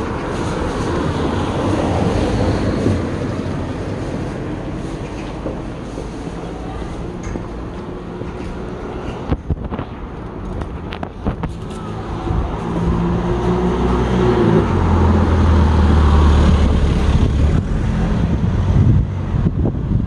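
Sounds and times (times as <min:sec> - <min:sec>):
motor vehicle passing by: 0:11.5 - 0:20.0.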